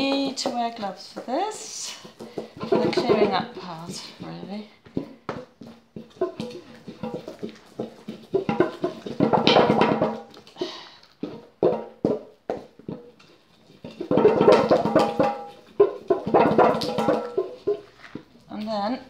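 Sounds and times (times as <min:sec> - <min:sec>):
pestle knocks: 0:00.0 - 0:10.4, 0:13.8 - 0:18.0
pestle grinding in bowl: 0:00.0 - 0:18.4.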